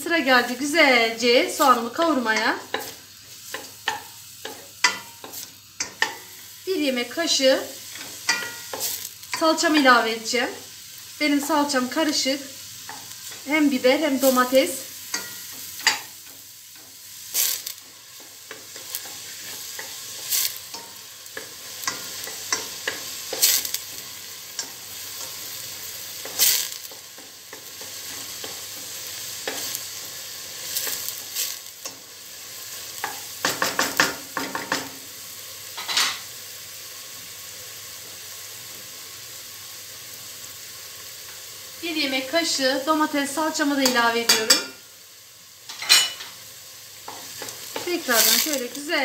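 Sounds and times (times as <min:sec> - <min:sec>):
onions sizzling in oil: 0:00.0 - 0:49.0
spoon scraping against pot: 0:07.9 - 0:09.4, 0:15.1 - 0:24.0.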